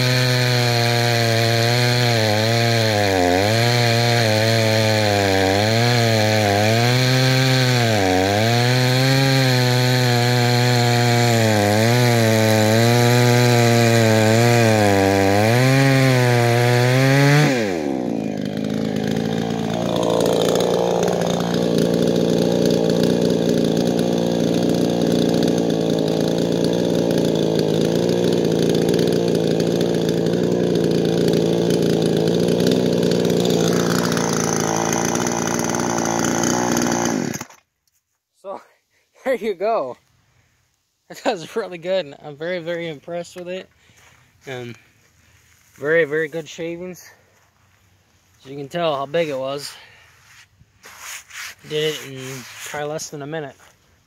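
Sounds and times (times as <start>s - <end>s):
chainsaw cutting log: 0.0s - 37.7s, 48.4s - 53.8s.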